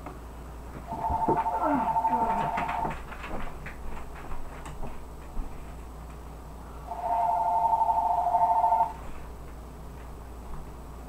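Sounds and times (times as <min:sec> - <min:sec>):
two-tone telephone ring: 0:00.9 - 0:02.9, 0:06.9 - 0:09.0.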